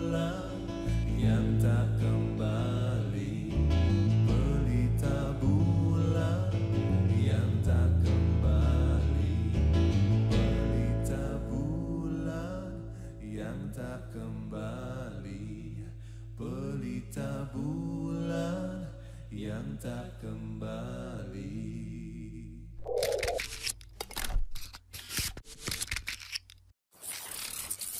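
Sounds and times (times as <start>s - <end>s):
man singing: 0.0s - 9.6s, 10.4s - 22.7s
guitar accompaniment: 0.0s - 11.4s
glitchy clicks and swishes: 22.8s - 27.9s.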